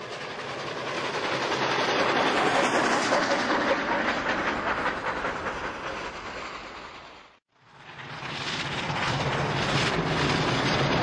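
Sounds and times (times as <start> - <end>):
train wheels on rails: 0.0 - 11.0
steam locomotive exhaust: 0.9 - 8.1.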